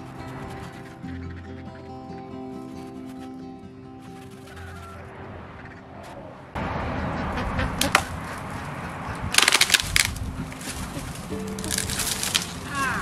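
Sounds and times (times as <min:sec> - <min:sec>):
branches and leaves rustling: 0:00.0 - 0:13.0
branches cracking and snapping: 0:07.8 - 0:08.5, 0:09.2 - 0:13.0.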